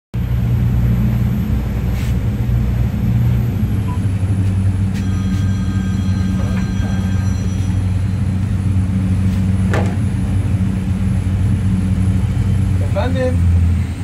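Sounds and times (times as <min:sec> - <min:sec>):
ship engines rumbling: 0:00.2 - 0:14.0
steady electronic tone: 0:03.5 - 0:12.7.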